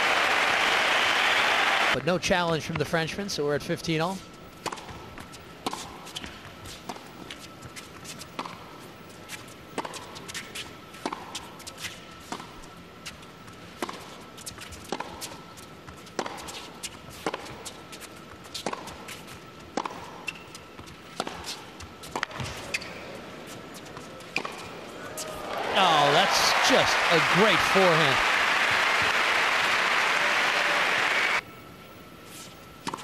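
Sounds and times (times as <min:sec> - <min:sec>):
tennis racquets hitting ball: 0:16.1 - 0:16.6, 0:18.6 - 0:18.9, 0:19.7 - 0:20.5, 0:21.1 - 0:22.9, 0:23.8 - 0:31.4
hushed crowd: 0:25.0 - 0:31.4.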